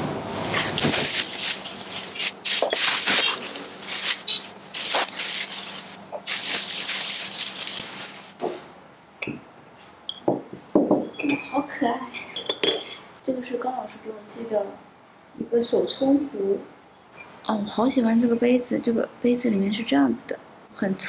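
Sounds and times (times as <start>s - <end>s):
bubble wrap crinkling: 0.4s - 8.4s
cups clinking: 9.2s - 9.5s, 10.1s - 13.0s.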